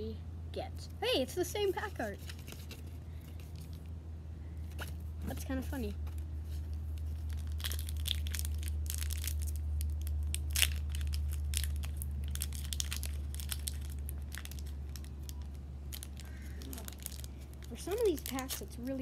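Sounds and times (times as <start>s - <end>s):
foil wrapper crinkling and tearing: 6.5s - 19.0s.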